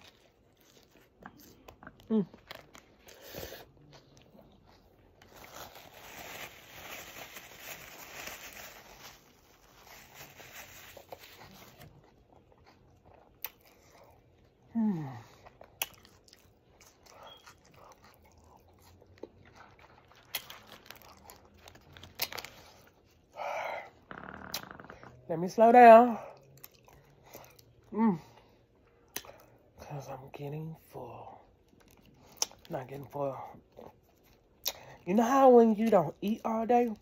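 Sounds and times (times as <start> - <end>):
wet chewing and lip smacking: 11.7 - 14.7, 15.4 - 23.4, 26.2 - 27.9, 28.7 - 29.7, 31.6 - 32.7.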